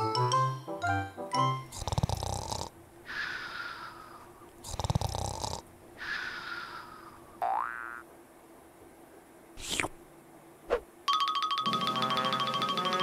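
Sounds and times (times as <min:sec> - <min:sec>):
cartoon snoring: 0:01.7 - 0:03.9, 0:04.6 - 0:06.4.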